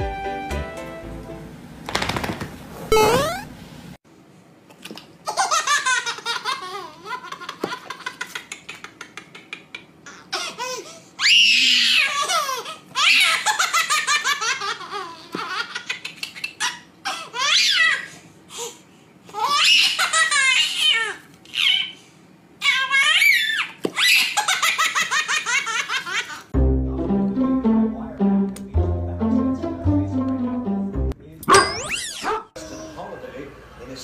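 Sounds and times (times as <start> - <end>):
baby laughing: 5.3 - 11.0, 12.0 - 18.1, 19.3 - 22.0, 22.6 - 26.5.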